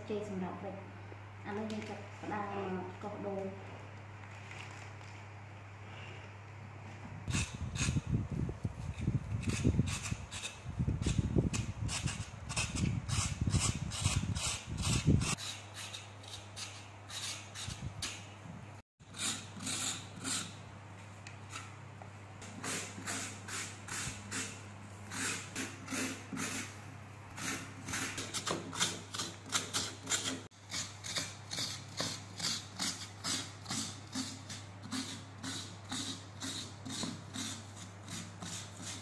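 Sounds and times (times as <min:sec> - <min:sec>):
coconut scraper rasping: 0:07.3 - 0:08.2, 0:08.8 - 0:18.3, 0:19.0 - 0:20.6, 0:22.6 - 0:26.8, 0:27.4 - 0:39.0.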